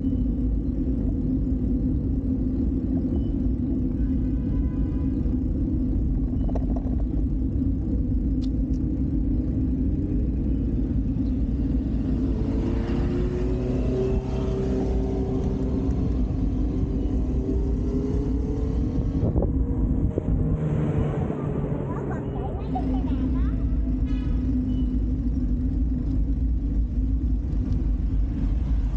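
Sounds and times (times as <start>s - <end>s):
traffic rumble: 0.0s - 28.9s
vehicle engine passing: 9.9s - 26.2s.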